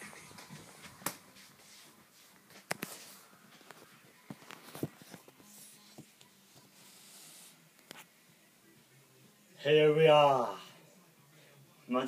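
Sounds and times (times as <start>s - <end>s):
soft rubbing and hiss: 0.0s - 9.0s.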